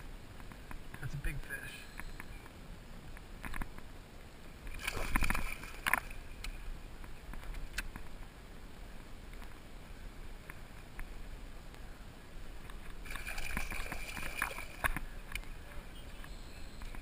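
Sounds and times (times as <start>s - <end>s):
water lapping around kayak: 4.5s - 17.0s
fish splashing: 4.7s - 6.3s, 13.0s - 15.2s.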